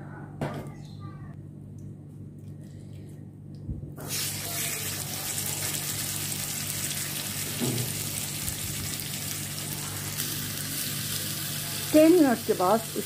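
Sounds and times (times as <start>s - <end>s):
low steady hum: 0.0s - 13.0s
steaks sizzling on grill pan: 4.1s - 13.0s.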